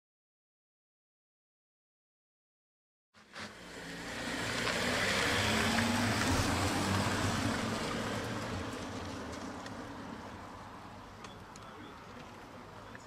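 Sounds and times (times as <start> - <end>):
car engine passing: 3.2 - 12.7
tyre noise on asphalt: 3.2 - 13.0.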